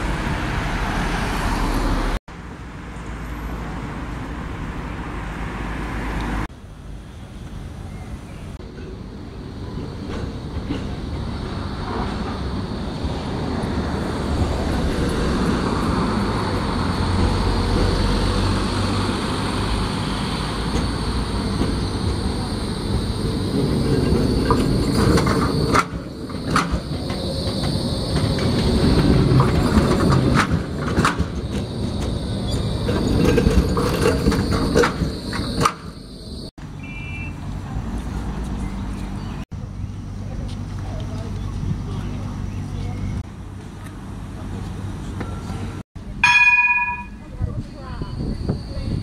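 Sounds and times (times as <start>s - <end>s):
tram wheels rumbling on rail: 0.0s - 36.5s
street noise: 0.0s - 49.0s
tram high whine: 0.0s - 49.0s
short beep: 36.8s - 37.4s.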